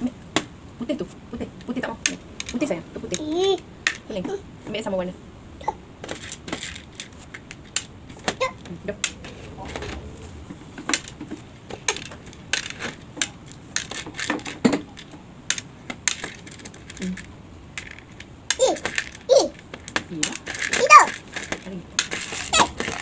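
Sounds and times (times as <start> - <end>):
pebbles clicking on plastic: 10.8 - 23.0.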